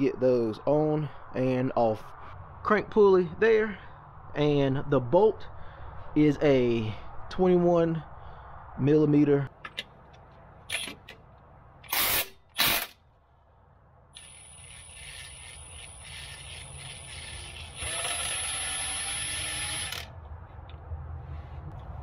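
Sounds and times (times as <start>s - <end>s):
impact wrench motor whine: 14.2s - 20.1s.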